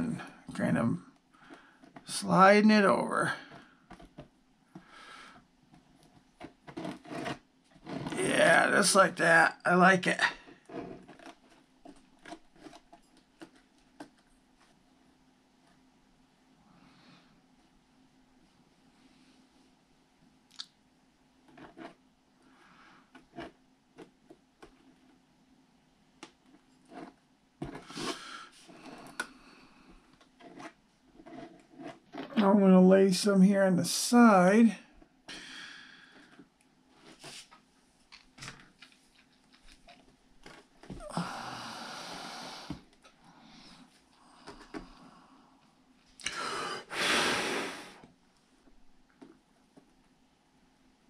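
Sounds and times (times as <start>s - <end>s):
clicks and scrapes on plastic: 5.8s - 8.2s, 10.4s - 14.3s, 21.5s - 22.0s, 26.2s - 32.4s
breathy hiss: 27.8s - 29.9s, 35.3s - 36.2s, 41.0s - 45.6s, 46.2s - 48.0s.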